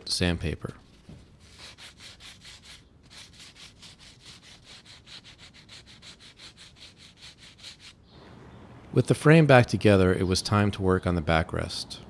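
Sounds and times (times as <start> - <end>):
sandpaper rubbing on wood: 1.4 - 8.0.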